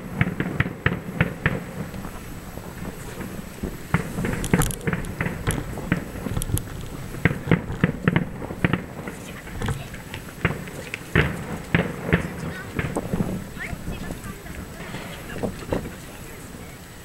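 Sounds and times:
fireworks bursting: 0.0s - 17.0s.

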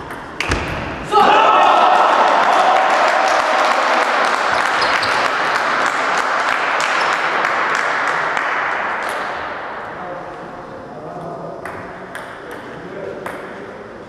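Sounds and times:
spectators clapping: 1.7s - 9.3s.

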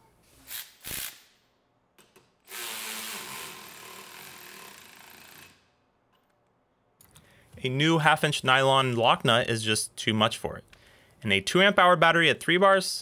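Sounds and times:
cordless ratchet running: 2.5s - 5.6s.

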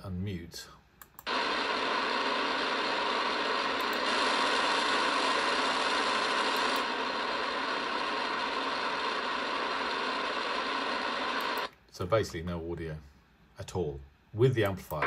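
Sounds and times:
radio static hiss: 1.3s - 11.7s.

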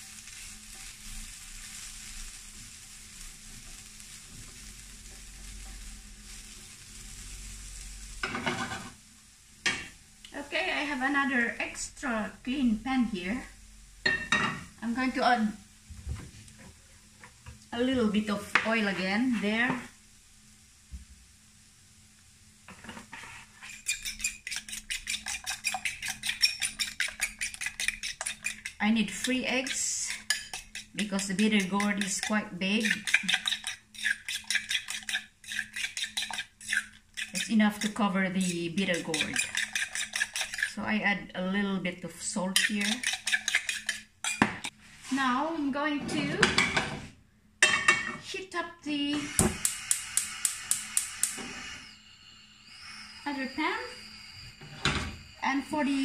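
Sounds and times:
spatula stirring and scraping: 0.0s - 7.3s, 18.0s - 20.0s, 22.7s - 41.0s, 42.3s - 47.1s
vegetables sizzling in a frying pan: 0.0s - 41.0s, 42.2s - 45.8s, 46.4s - 56.0s
fork clinking against glass bowl: 31.6s - 37.9s, 39.0s - 40.7s, 42.6s - 44.4s.

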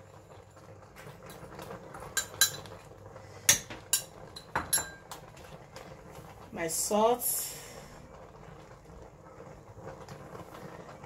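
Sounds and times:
spoon clinking on metal pot: 2.1s - 2.8s, 3.5s - 5.2s.

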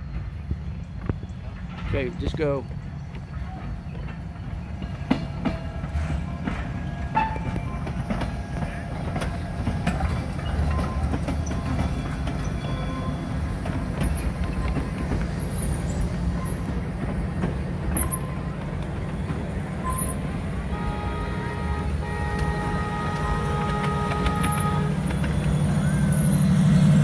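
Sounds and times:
train wheels rumbling on rails: 0.0s - 27.0s
clicks over rail joints: 22.3s - 25.5s.

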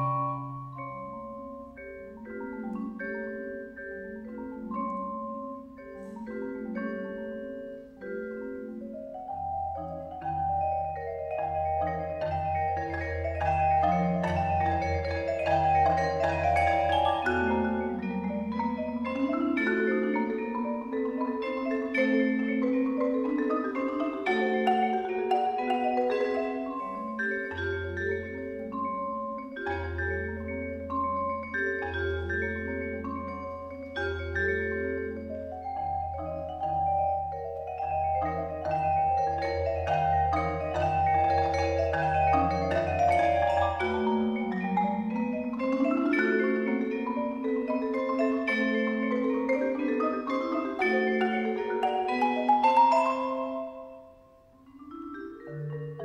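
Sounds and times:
marimba playing fast: 0.0s - 56.0s
vibraphone playing fast: 0.0s - 56.0s.

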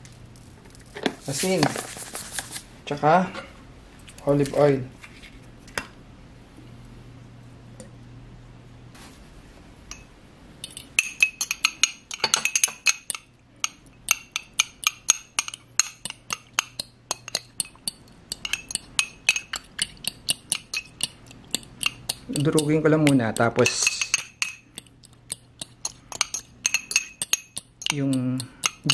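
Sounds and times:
whisk clinking against ceramic dish: 10.6s - 28.9s.

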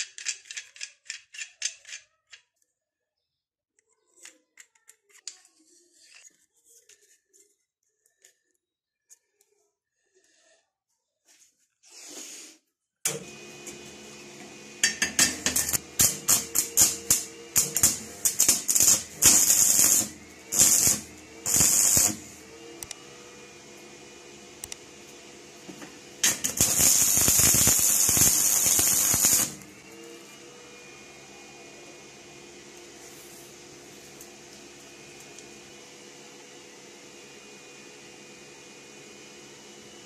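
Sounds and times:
electrical hum: 13.1s - 40.0s
welding arc crackling: 14.8s - 22.9s, 26.2s - 29.8s.

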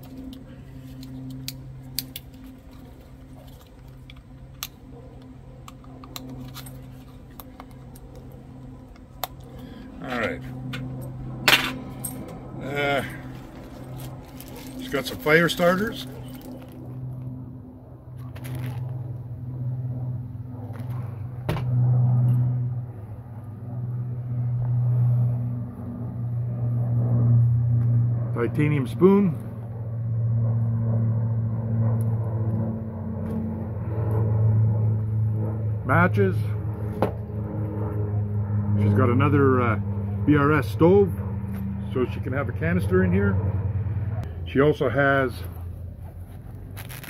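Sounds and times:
low-flying plane droning: 0.0s - 47.0s
steady low hum: 0.0s - 47.0s
gear clicking and rustling: 13.3s - 16.9s.

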